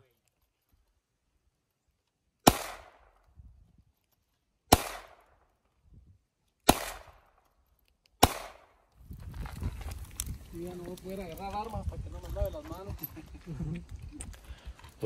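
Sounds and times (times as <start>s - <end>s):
handgun shots: 2.4s - 3.1s, 4.7s - 5.4s, 6.6s - 7.4s, 8.2s - 8.8s.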